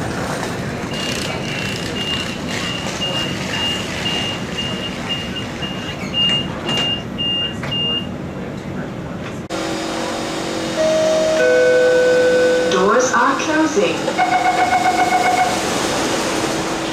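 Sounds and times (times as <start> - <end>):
train doors sliding shut: 1.3 - 7.9
door warning beeps: 1.9 - 8.1, 10.8 - 12.9, 14.1 - 15.7.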